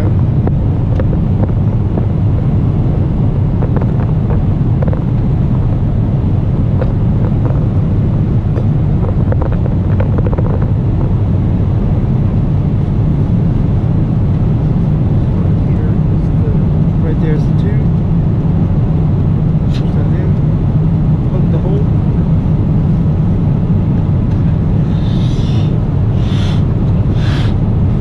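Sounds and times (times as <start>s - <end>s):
airliner engines rumbling: 0.0s - 28.0s.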